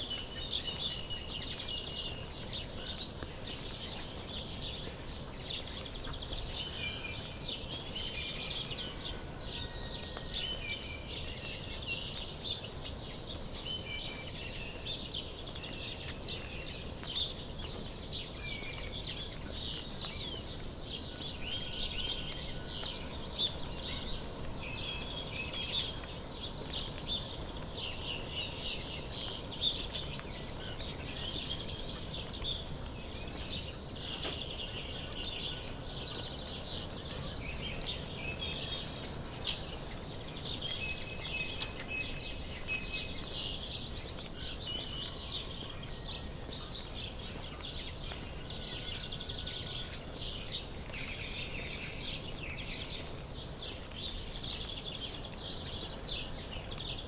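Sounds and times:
low background noise: 0:00.0 - 0:57.0
songbirds chirping and singing: 0:00.0 - 0:57.0.

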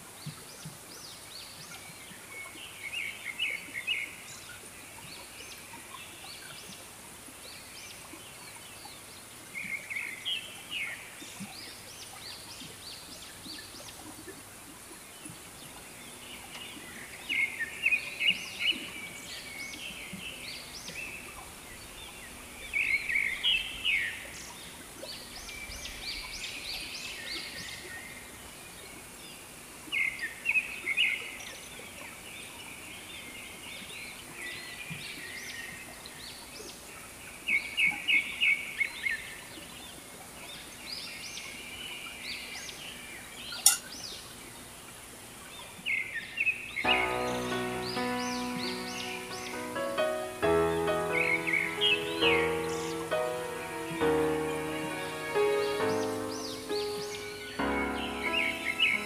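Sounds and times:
birds calling in sharp bursts: 0:46.8 - 0:59.0.

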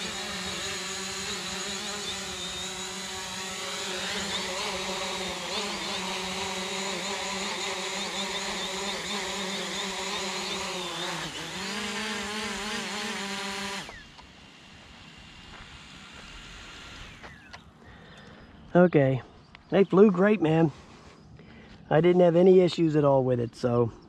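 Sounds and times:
motors spinning down: 0:00.0 - 0:17.8
drone motors whining: 0:00.0 - 0:18.7.

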